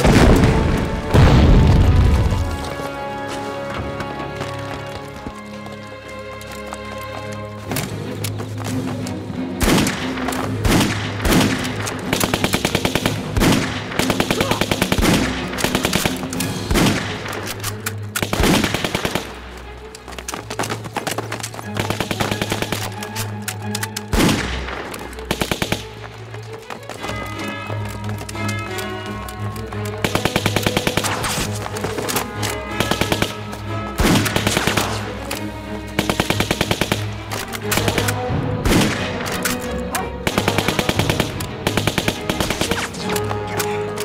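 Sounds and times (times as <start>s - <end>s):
tense background music: 0.0s - 44.0s
rifle shots: 9.6s - 19.4s, 24.1s - 25.9s, 30.0s - 31.6s, 32.8s - 35.1s, 36.0s - 39.6s, 40.2s - 43.1s
machine-gun bursts: 40.3s - 43.0s.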